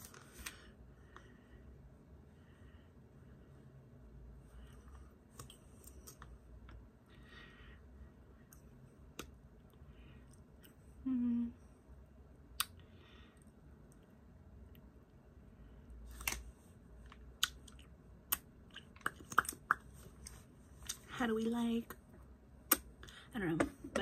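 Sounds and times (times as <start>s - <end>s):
person humming: 11.0s - 11.6s
lip smacks: 12.5s - 12.8s, 17.1s - 21.1s, 22.6s - 23.2s.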